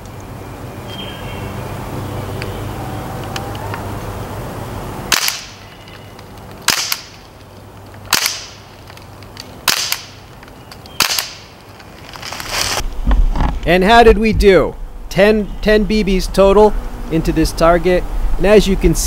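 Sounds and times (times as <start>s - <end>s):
air rifle shots: 5.1s - 5.6s, 6.6s - 7.2s, 8.1s - 8.7s, 9.6s - 10.2s, 11.0s - 11.6s.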